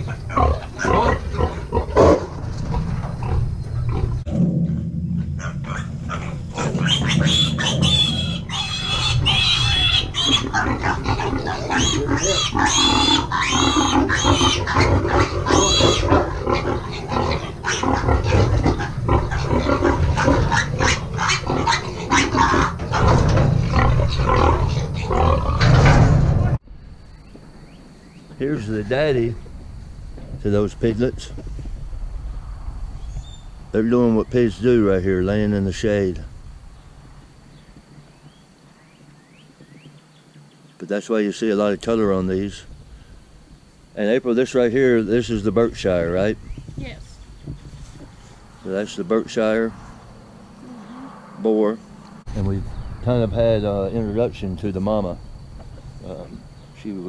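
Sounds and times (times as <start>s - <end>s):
piglets squealing and grunting: 0.0s - 2.3s, 5.4s - 25.8s.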